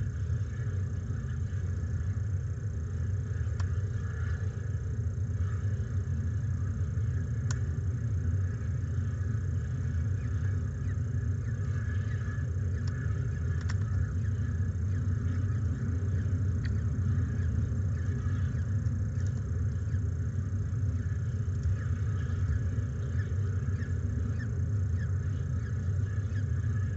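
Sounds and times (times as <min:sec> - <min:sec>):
steady low rumble: 0:00.0 - 0:26.9
faint clicks: 0:03.3 - 0:04.5, 0:07.1 - 0:07.8, 0:10.2 - 0:20.0, 0:20.9 - 0:26.9.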